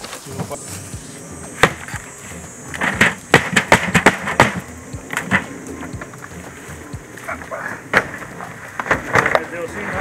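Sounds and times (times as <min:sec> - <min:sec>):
wooden boxes knocking: 0:02.7 - 0:06.1.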